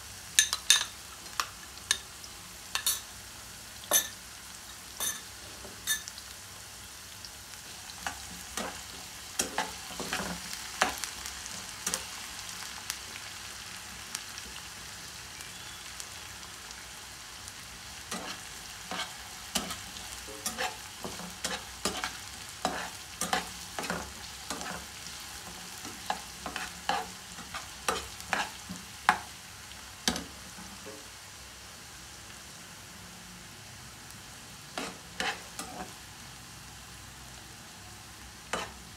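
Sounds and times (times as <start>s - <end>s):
potatoes sizzling in oil: 0.0s - 38.9s
spatula scraping pan: 18.1s - 29.2s, 34.8s - 36.0s, 38.5s - 38.8s.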